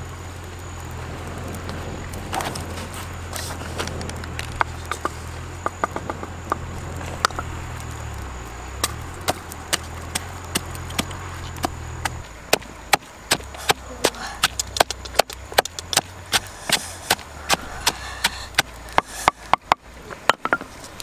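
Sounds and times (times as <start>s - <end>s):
pestle pounding in wooden mortar: 8.8s - 20.7s.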